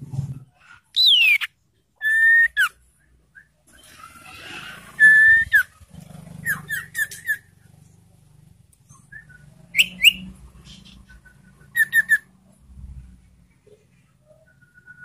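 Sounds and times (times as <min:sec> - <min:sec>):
bird whistling calls: 0:00.9 - 0:02.8, 0:04.9 - 0:05.7, 0:08.9 - 0:12.3.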